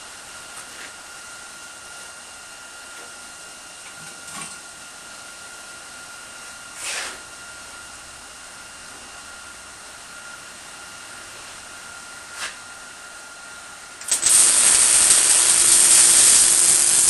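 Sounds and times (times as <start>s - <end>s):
high steady whine: 13.6s - 17.0s
steady hiss: 14.0s - 17.0s.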